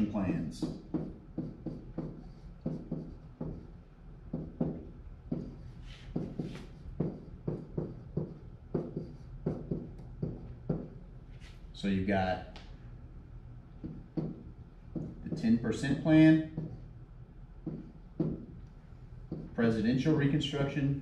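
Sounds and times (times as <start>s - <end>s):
steady low hum: 0.0s - 21.0s
stylus tapping on whiteboard: 0.6s - 11.0s, 13.8s - 15.6s, 16.5s - 16.8s, 17.6s - 18.6s, 19.3s - 19.6s.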